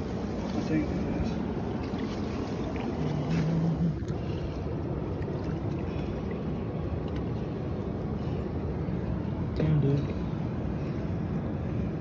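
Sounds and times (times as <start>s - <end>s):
water moving along rocks: 0.0s - 9.6s
low hum: 0.0s - 12.0s.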